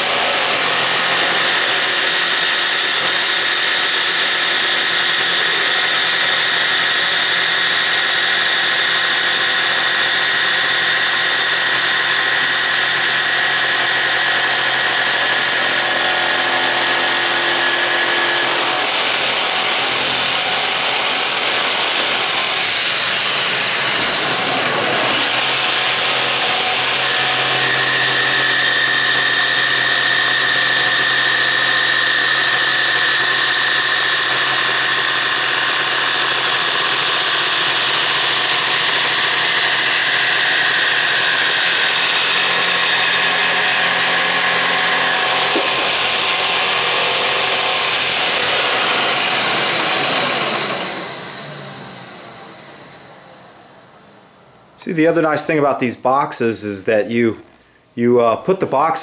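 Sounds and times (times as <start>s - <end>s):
jigsaw cutting wood: 0.0s - 53.0s.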